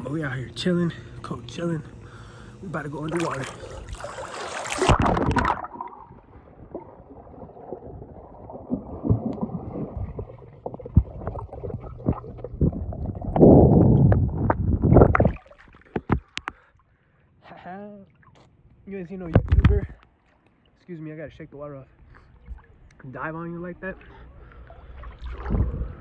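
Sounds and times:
churning water: 2.7 - 16.4, 22.3 - 26.0
phone splashing into water: 3.1 - 6.2
underwater gurgling: 3.1 - 16.4, 24.0 - 26.0.

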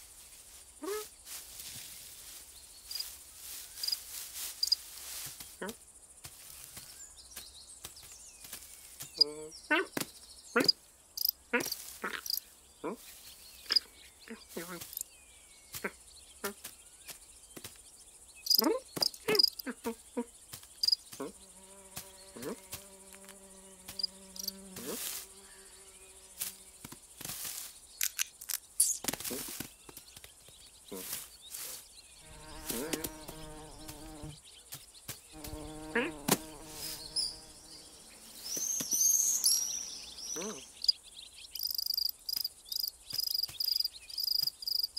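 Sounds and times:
crickets chirring: 0.0 - 44.9
cartoon insect buzzing: 18.5 - 19.7, 20.8 - 25.6, 32.2 - 34.4, 35.4 - 37.6
short clicks and chirps: 28.0 - 29.1.

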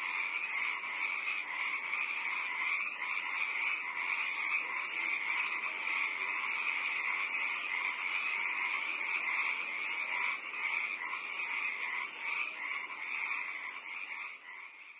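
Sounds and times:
chorus of calling animals: 0.0 - 14.9.

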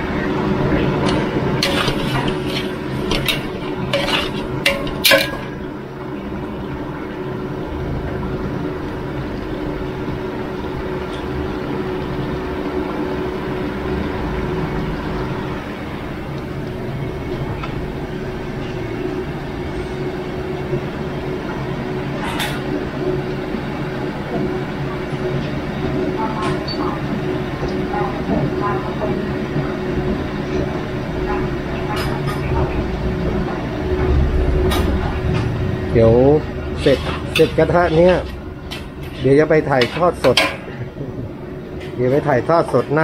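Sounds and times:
metal spatula clanking on wok: 1.0 - 5.6
low hum: 32.4 - 39.2.

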